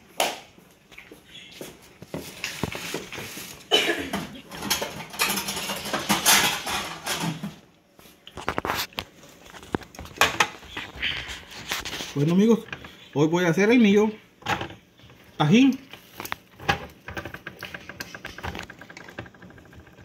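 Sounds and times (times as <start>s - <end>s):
dishes and utensils clattering: 3.7s - 7.6s.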